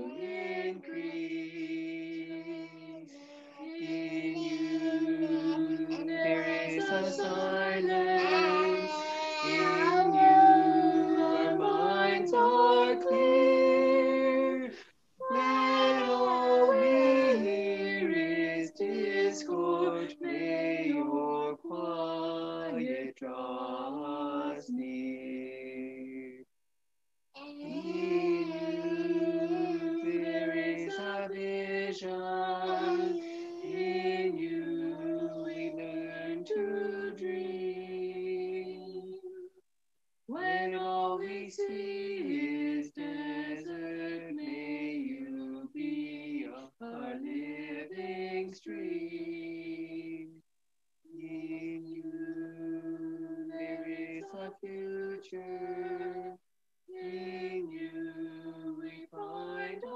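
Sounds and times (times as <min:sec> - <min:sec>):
group singing a hymn in harmony: 0:00.0 - 0:26.4, 0:27.6 - 0:39.5, 0:40.4 - 0:50.3, 0:51.2 - 0:59.9.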